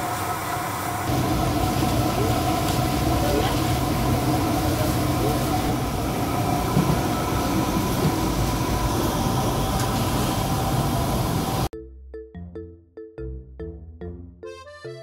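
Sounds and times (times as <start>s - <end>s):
kitchen machinery drone: 0.0s - 11.7s.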